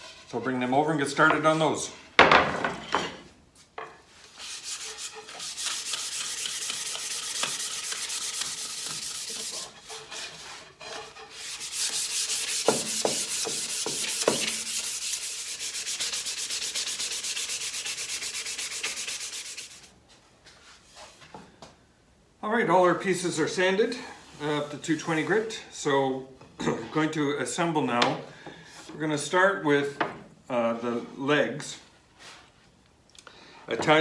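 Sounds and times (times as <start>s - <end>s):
sandpaper rubbing on wood: 4.3s - 19.9s.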